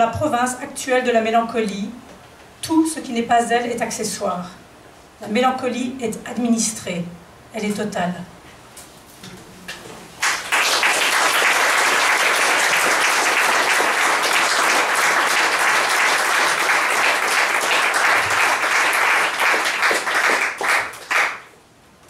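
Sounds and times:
audience applauding: 0:10.2 - 0:21.5.

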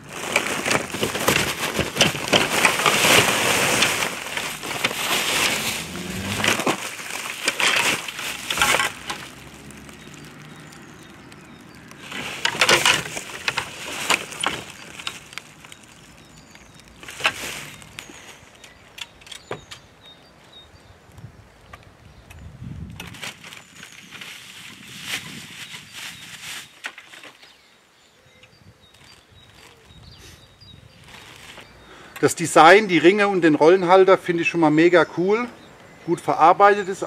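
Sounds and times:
plastic packaging crinkling: 0:00.0 - 0:19.0, 0:23.0 - 0:27.4, 0:31.0 - 0:31.8.

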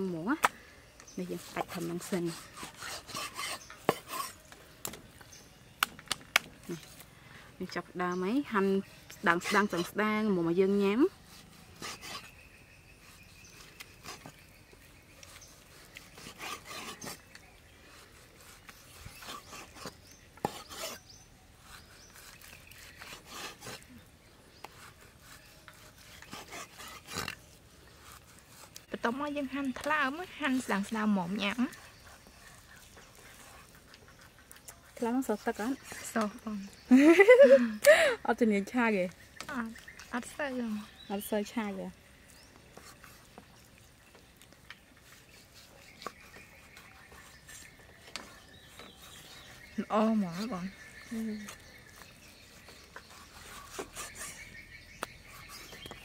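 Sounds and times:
cleaver slicing meat on wood: 0:01.2 - 0:05.0, 0:13.0 - 0:36.8, 0:42.6 - 0:56.0.

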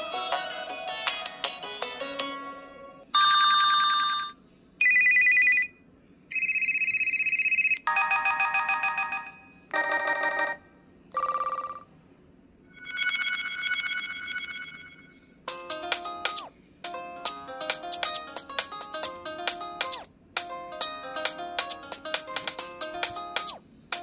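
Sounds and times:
electronic phone ringtones: 0:06.3 - 0:10.6, 0:12.8 - 0:24.0.

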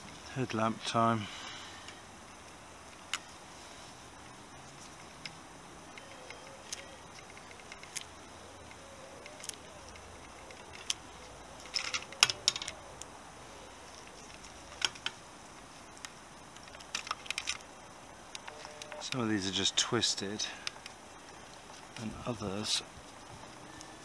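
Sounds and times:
sharp clicks: 0:04.2 - 0:12.8
wires and plastic connectors rattling: 0:04.2 - 0:12.8, 0:13.8 - 0:24.0.

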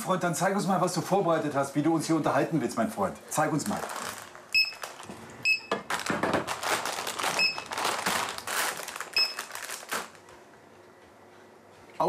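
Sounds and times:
items clattering and rustling: 0:03.6 - 0:10.5
barcode scanner beeping: 0:04.5 - 0:04.8, 0:05.4 - 0:05.8, 0:07.4 - 0:07.7, 0:09.1 - 0:09.5.

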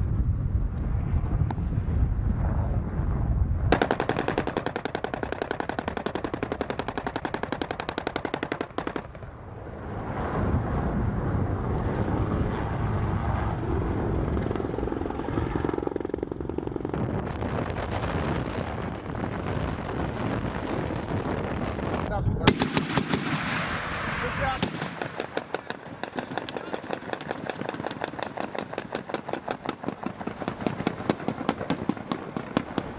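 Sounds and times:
helicopter rotor and turbine: 0:00.0 - 0:32.9
rotary cannon firing: 0:03.7 - 0:09.4, 0:14.3 - 0:32.9.

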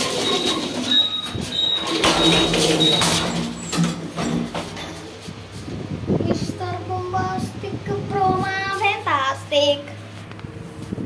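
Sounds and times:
metal gate squeaking: 0:00.0 - 0:05.1
gate scraping rumble: 0:00.0 - 0:06.5.

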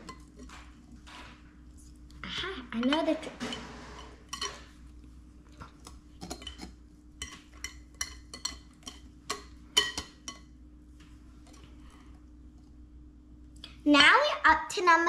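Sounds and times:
whisk tapping glass bowl: 0:06.2 - 0:10.5.

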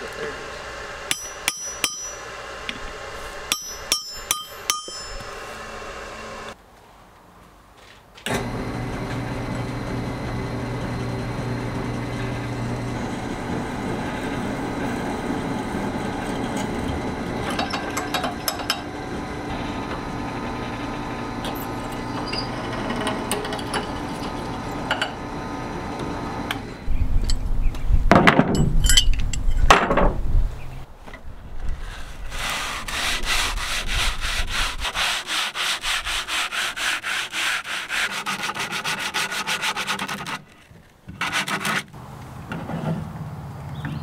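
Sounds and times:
drill bit cutting steel: 0:00.0 - 0:06.6, 0:08.4 - 0:26.8
drill press motor running: 0:05.1 - 0:06.6, 0:08.3 - 0:26.9
steel scraping on wooden board: 0:13.0 - 0:25.1, 0:31.7 - 0:43.1.

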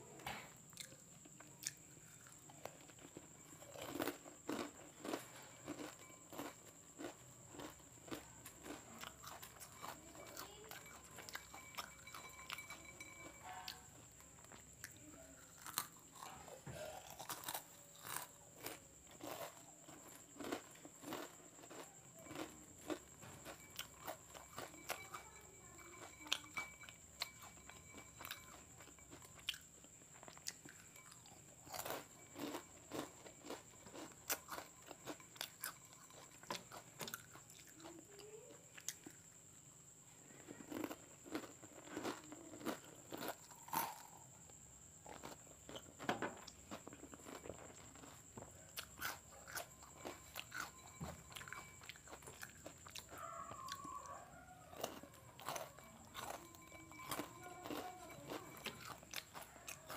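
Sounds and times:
crunching and chewing snacks: 0:00.2 - 0:39.4, 0:40.2 - 0:59.9.

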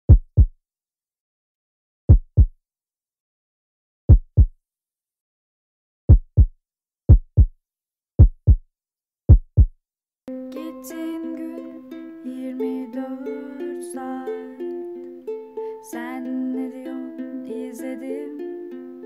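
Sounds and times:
heartbeat thumps: 0:00.1 - 0:00.5, 0:02.1 - 0:02.6, 0:04.1 - 0:04.5, 0:06.1 - 0:06.5, 0:07.1 - 0:07.5, 0:08.2 - 0:08.6, 0:09.3 - 0:09.7.

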